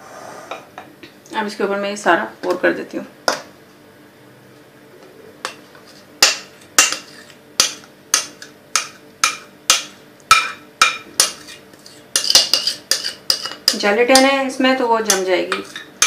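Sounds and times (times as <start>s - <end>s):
spoon tapping mixing bowl: 7.6s - 11.4s, 12.2s - 14.4s, 15.0s - 15.8s.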